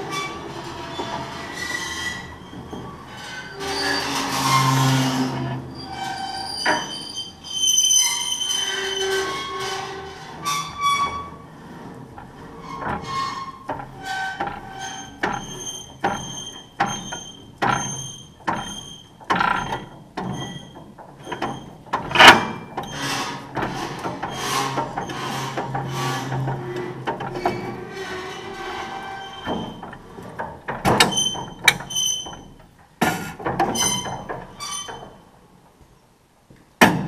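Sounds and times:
baler linkage squeaking and clicking: 0:12.8 - 0:23.0, 0:30.8 - 0:32.6.

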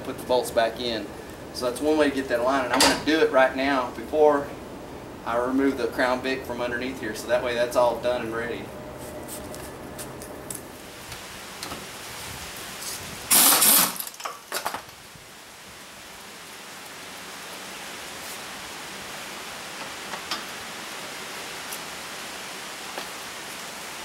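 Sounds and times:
steady hiss: 0:00.0 - 0:24.0.

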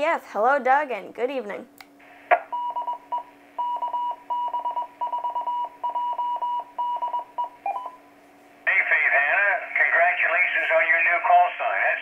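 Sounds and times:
morse code tone: 0:02.6 - 0:08.0.

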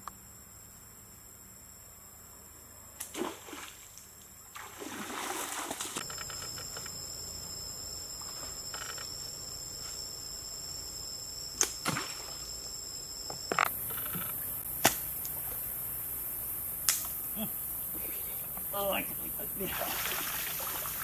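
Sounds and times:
splashing in shallow water: 0:03.1 - 0:06.0, 0:19.6 - 0:21.0
steady high-pitched whine: 0:06.0 - 0:21.0.

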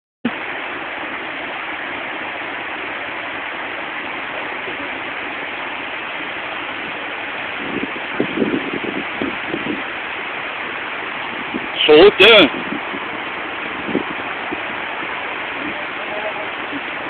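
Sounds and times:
river rushing over rocks: 0:00.3 - 0:17.0
person speaking: 0:11.8 - 0:12.5.

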